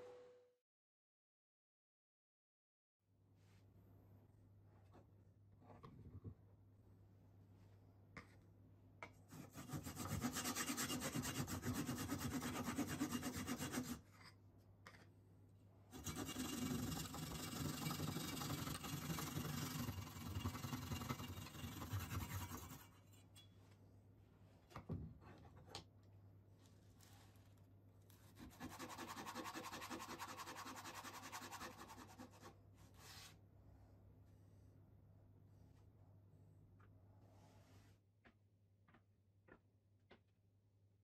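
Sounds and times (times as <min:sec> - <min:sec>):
handsaw cutting wood: 0:09.4 - 0:14.0, 0:16.0 - 0:22.8, 0:28.4 - 0:32.4.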